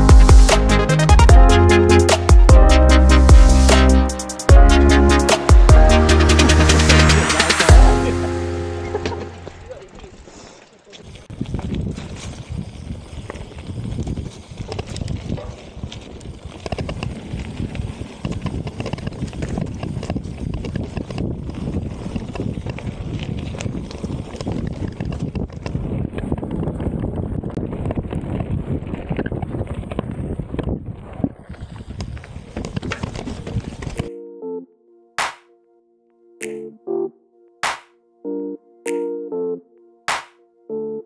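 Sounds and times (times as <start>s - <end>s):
bike tyres rattling over trail: 8.9s - 34.1s
wind buffeting microphone: 11.2s - 34.0s.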